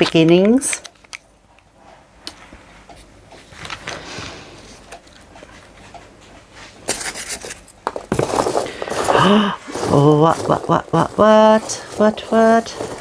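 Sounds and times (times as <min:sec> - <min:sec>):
hands rustling packing peanuts: 0:06.9 - 0:13.0.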